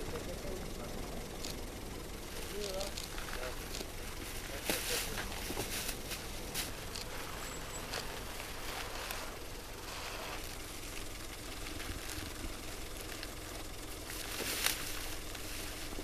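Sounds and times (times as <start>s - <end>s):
steady low rumble: 0.0s - 16.0s
feed sacks rustling on snow: 4.6s - 10.5s.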